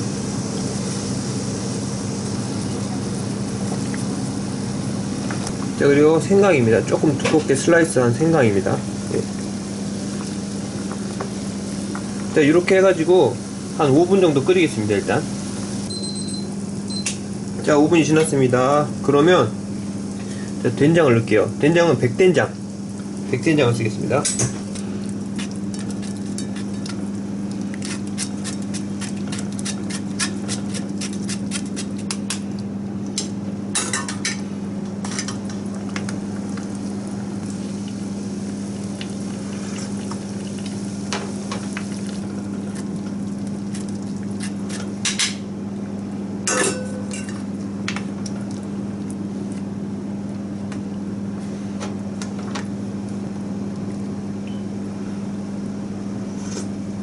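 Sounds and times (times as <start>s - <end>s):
steady low hum: 0.0s - 57.0s.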